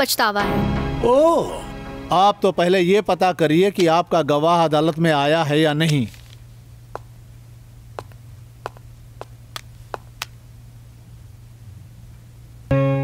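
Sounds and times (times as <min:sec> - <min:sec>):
music: 0:00.4 - 0:02.5, 0:12.7 - 0:13.0
steady low hum: 0:02.5 - 0:12.7
faint irregular clicks: 0:05.8 - 0:07.1, 0:08.0 - 0:10.4.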